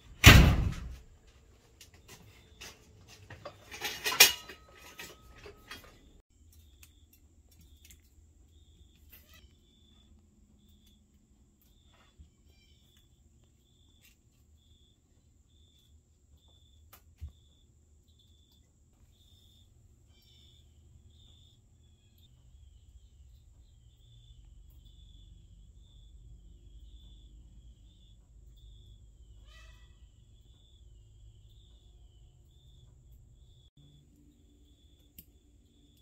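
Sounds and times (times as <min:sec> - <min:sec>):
door slam: 0:00.2 - 0:01.0
metal tools clattering: 0:02.1 - 0:06.2.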